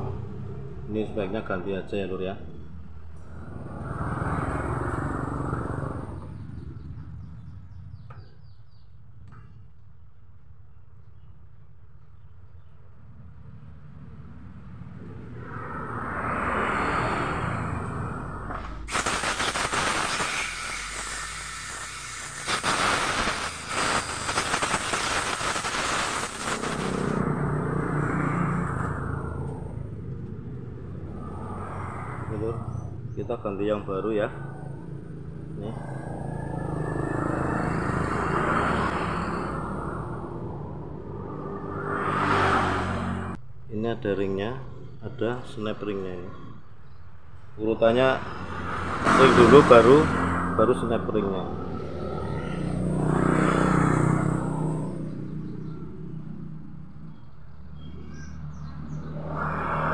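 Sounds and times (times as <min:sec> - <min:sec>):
vehicle engine passing by: 0:00.0 - 0:01.7, 0:03.0 - 0:08.0, 0:13.1 - 0:18.9, 0:20.7 - 0:43.4, 0:47.8 - 0:59.9
bird chirping: 0:06.2 - 0:09.7, 0:54.9 - 0:59.3
compressed air hissing: 0:18.8 - 0:27.2.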